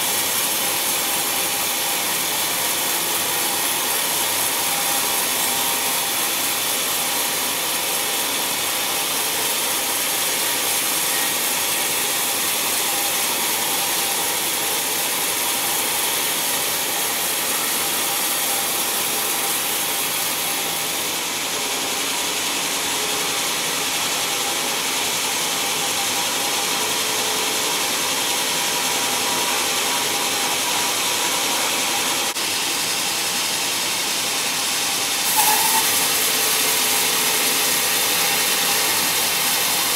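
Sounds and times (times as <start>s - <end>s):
band saw cutting wood: 0.0s - 39.9s.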